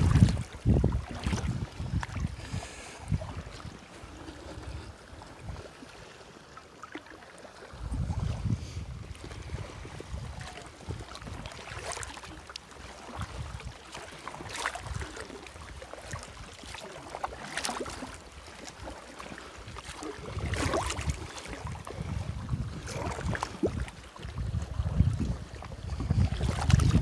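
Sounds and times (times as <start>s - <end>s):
wind rumbling on microphone: 0.0s - 5.8s, 7.7s - 13.8s, 14.4s - 16.6s, 19.6s - 27.0s
paddle strokes splashing in water: 0.0s - 27.0s.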